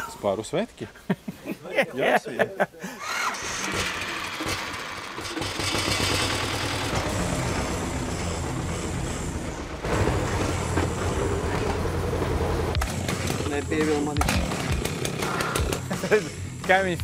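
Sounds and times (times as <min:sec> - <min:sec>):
tractor engine running: 0:03.2 - 0:15.9.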